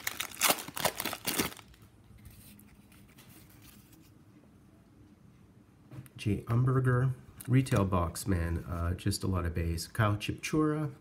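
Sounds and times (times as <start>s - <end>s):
foil wrapper crinkling and tearing: 0.0s - 1.8s.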